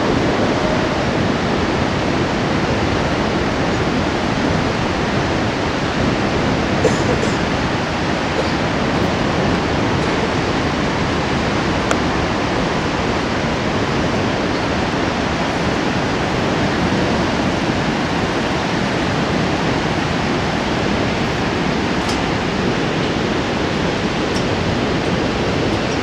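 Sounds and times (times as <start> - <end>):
river rapids roaring: 0.0 - 26.0.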